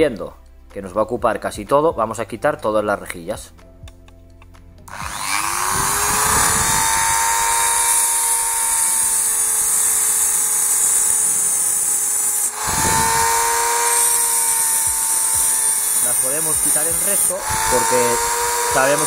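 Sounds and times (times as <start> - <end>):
rotary tool cutting plastic: 4.9 - 19.0.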